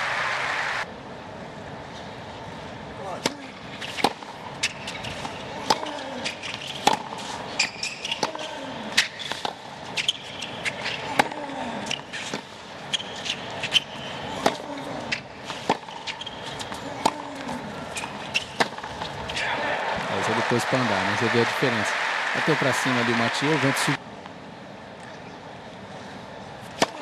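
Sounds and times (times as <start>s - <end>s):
tennis ball struck by rackets: 3.2s - 12.6s, 13.2s - 19.2s, 26.7s - 27.0s
stadium crowd murmur: 19.4s - 24.0s.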